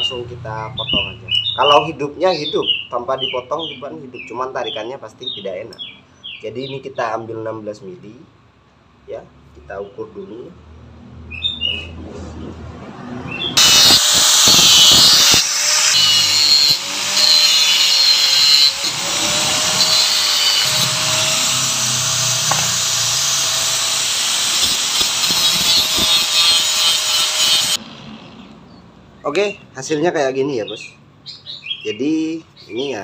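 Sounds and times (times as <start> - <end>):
angle grinder cutting steel: 13.6 - 28.5.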